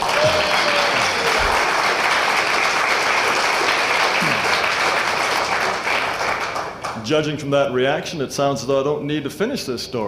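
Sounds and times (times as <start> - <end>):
crowd applauding: 0.0 - 7.0
people laughing: 4.2 - 4.6
people talking: 7.0 - 10.0.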